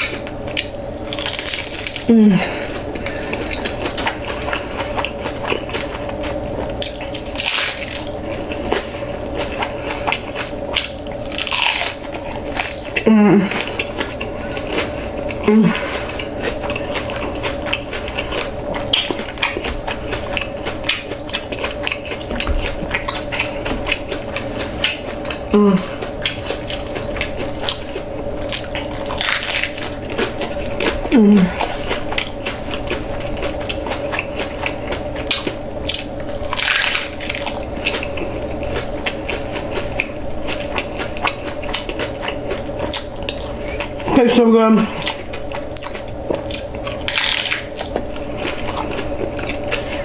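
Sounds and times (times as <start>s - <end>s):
crunching taco shells: 0.0s - 50.0s
steady hum: 0.0s - 50.0s
person murmuring: 2.1s - 2.7s, 13.0s - 13.6s, 15.4s - 15.9s, 25.5s - 26.0s, 31.1s - 31.6s.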